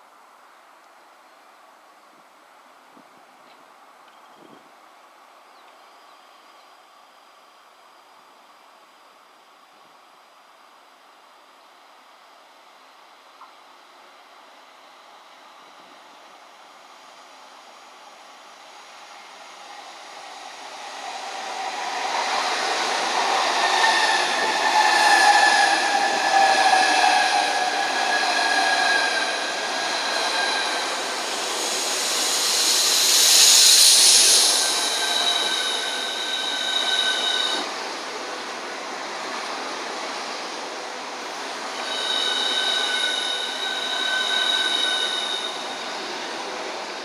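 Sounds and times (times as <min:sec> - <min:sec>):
rail and wheel noise: 0:00.0 - 0:47.0
train passing: 0:14.1 - 0:47.0
loud hiss: 0:18.0 - 0:47.0.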